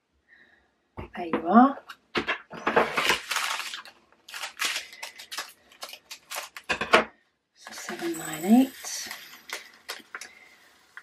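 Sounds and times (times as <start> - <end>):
plastic bags crinkling: 2.6 - 6.9, 7.7 - 11.0.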